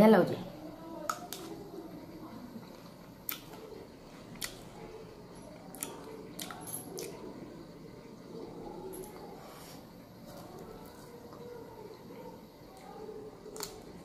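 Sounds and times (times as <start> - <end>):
quiet chewing: 2.3 - 7.4, 8.0 - 14.0.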